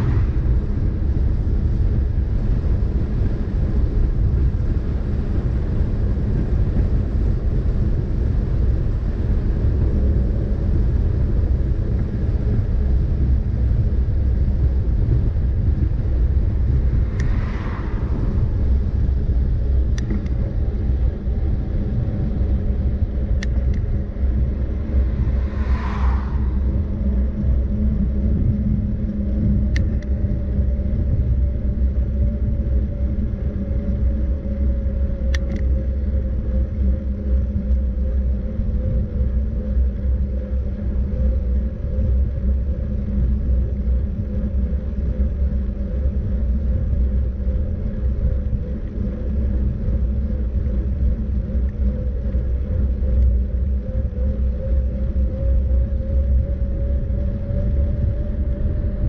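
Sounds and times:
short whoosh: 0.0 - 1.4, 16.5 - 19.2, 24.6 - 27.4
vehicle rumble: 0.0 - 59.0
faint steady tone: 13.2 - 59.0.

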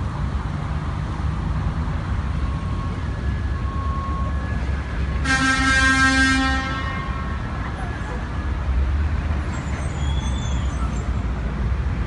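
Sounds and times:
street traffic rumble: 0.0 - 12.0
vehicle horn honking: 5.2 - 7.4.

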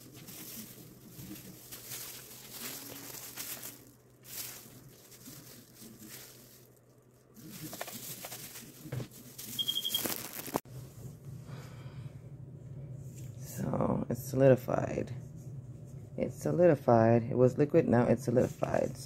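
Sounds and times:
handling clicks and rustles: 0.0 - 10.6
low steady hum: 0.0 - 19.0
short high beeps: 9.6 - 10.2.

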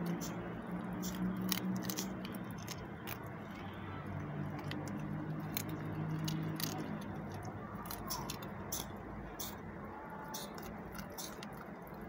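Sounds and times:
dog chewing meat: 0.0 - 3.5, 4.1 - 8.9.

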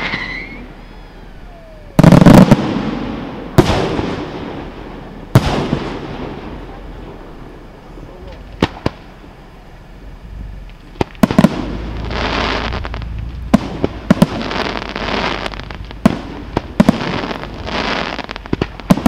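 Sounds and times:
firework shells bursting: 0.0 - 0.7, 10.6 - 19.0
faint firework cracks: 8.2 - 9.2, 10.6 - 19.0.

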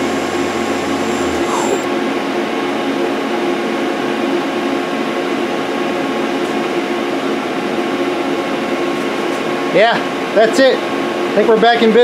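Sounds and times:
held machine tones: 0.0 - 1.9
lathe machine hum: 0.0 - 1.9.

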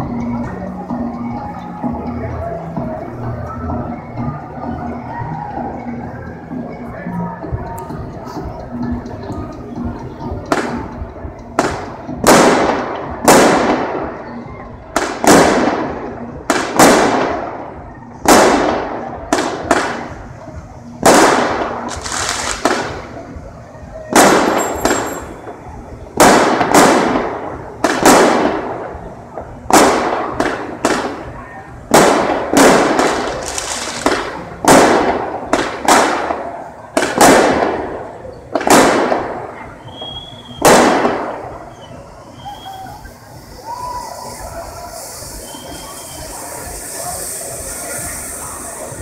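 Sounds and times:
loud explosive bangs with echo: 11.6 - 14.1, 15.0 - 17.6, 18.2 - 20.2, 21.0 - 23.1, 26.2 - 29.0, 29.7 - 31.3, 31.9 - 39.6, 40.6 - 41.6.

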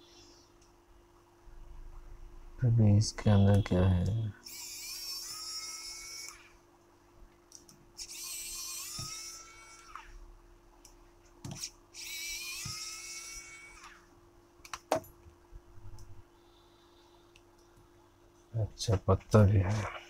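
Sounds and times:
small electric motor whining: 4.4 - 6.6, 8.0 - 10.2, 11.6 - 14.1.

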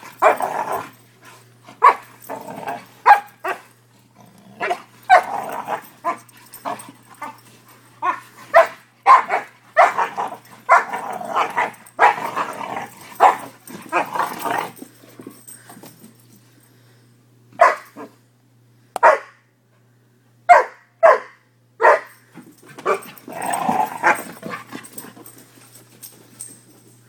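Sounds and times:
puppies barking: 3.0 - 3.7, 8.0 - 12.6, 13.2 - 14.2.

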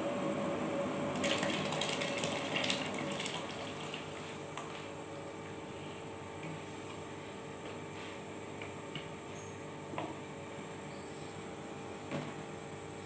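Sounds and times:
water boiling and bubbling: 0.9 - 4.8
liquid splashing into water: 1.2 - 4.7.

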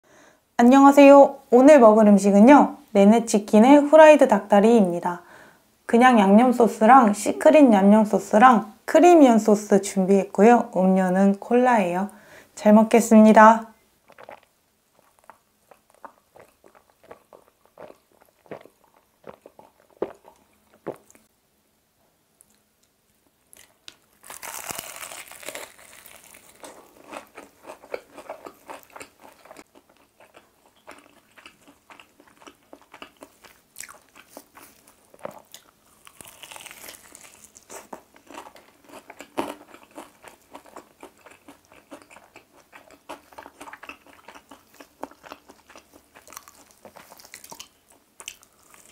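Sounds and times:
crunching bites of fried chicken: 23.6 - 48.9.

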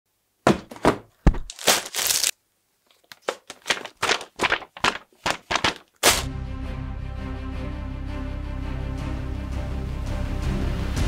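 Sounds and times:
cardboard box lid knock: 0.4 - 1.5
paper pages flipping: 1.3 - 6.3
plastic bags crinkling: 1.4 - 6.2.

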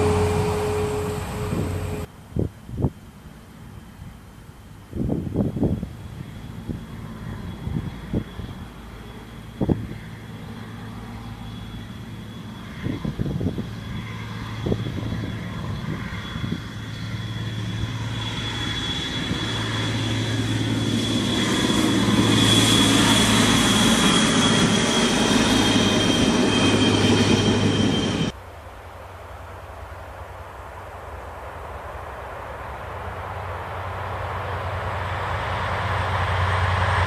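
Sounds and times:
diesel train passing: 0.0 - 2.2, 3.2 - 37.0.

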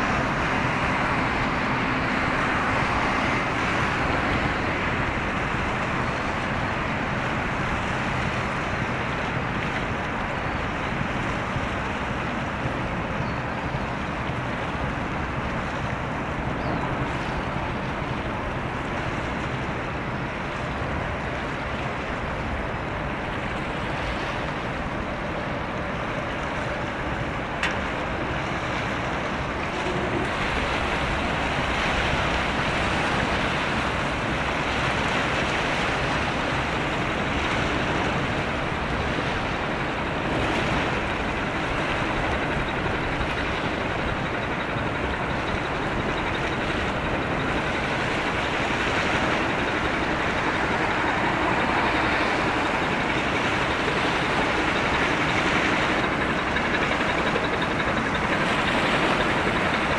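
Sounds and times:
ship engine droning: 0.0 - 59.9
wind: 0.0 - 59.9
water washing: 13.8 - 59.9.

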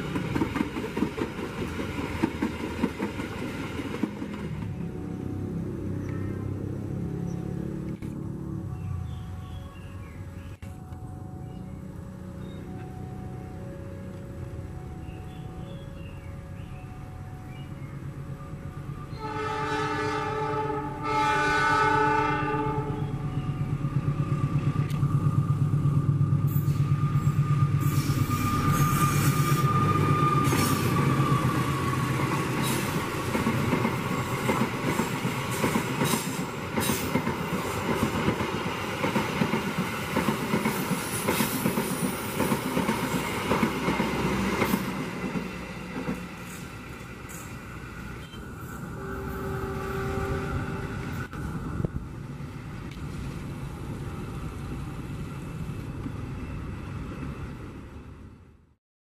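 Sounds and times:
wheels clicking over rail joints: 0.0 - 5.2
passenger train passing: 0.0 - 58.8
train horn blasts: 19.0 - 23.3, 26.5 - 32.0, 48.2 - 51.4.

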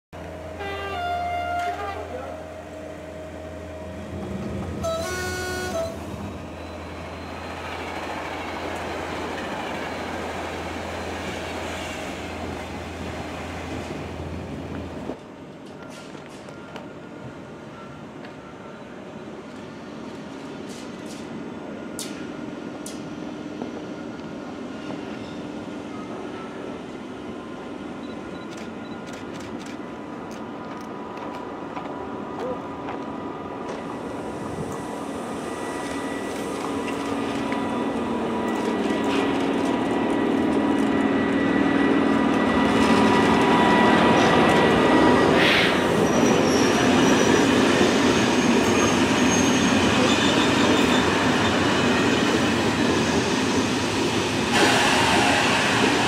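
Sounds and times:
electric locomotive whine: 0.2 - 56.0
train wheels rumbling on rails: 0.2 - 56.0
wheel squeal: 45.4 - 51.6.

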